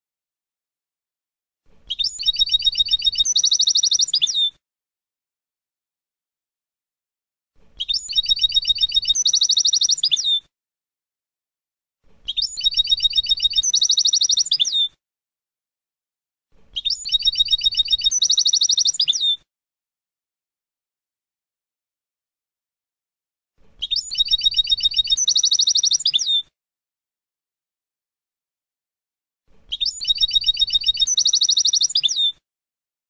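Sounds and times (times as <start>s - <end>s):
goldfinch song: 1.8s - 4.6s, 7.7s - 10.5s, 12.2s - 15.0s, 16.7s - 19.4s, 23.8s - 26.5s, 29.7s - 32.4s.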